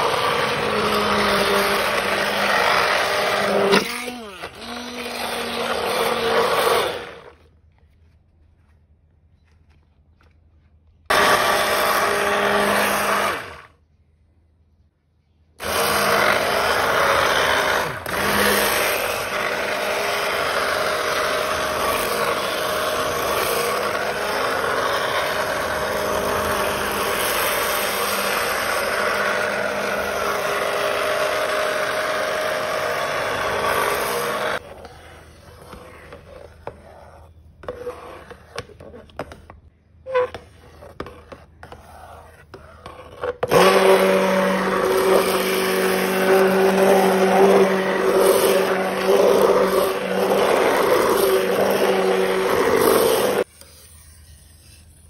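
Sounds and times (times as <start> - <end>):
stick blender running: 0.0 - 7.4, 11.1 - 13.7, 15.6 - 34.7, 43.4 - 53.5.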